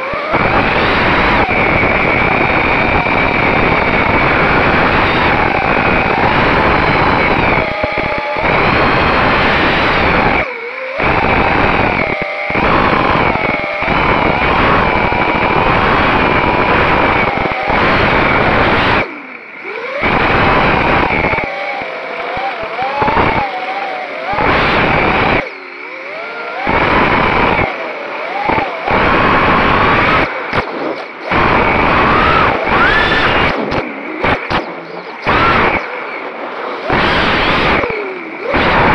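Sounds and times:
drone motors whining: 0.0s - 38.9s
wind rushing: 28.5s - 38.9s.

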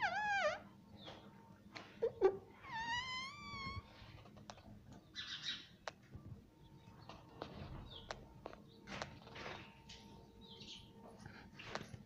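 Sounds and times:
parakeet low squawk: 2.5s - 3.9s.

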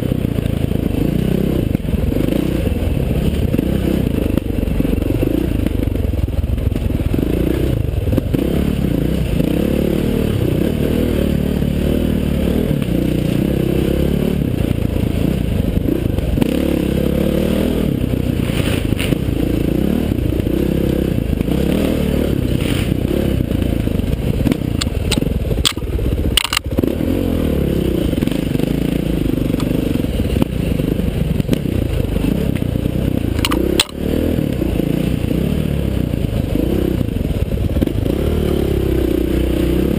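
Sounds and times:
dirt bike engine revving: 0.0s - 6.1s, 6.7s - 39.9s.

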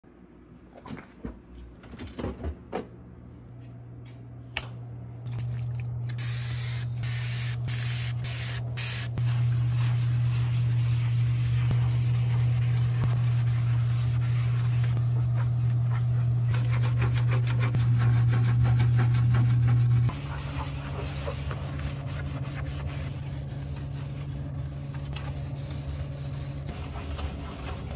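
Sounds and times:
steady low hum: 2.5s - 27.9s
spray bottle squirting: 6.2s - 9.1s
sponge scrubbing glass: 8.4s - 27.9s.

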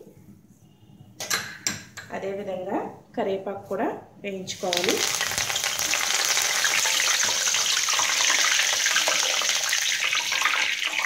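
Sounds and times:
leaves sizzling in hot oil: 4.5s - 11.0s.

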